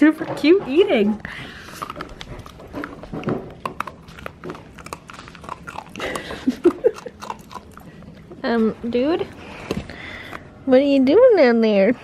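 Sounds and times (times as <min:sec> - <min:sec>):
dog chewing and crunching: 0:00.7 - 0:08.6
dog mouth clicks: 0:01.7 - 0:06.3.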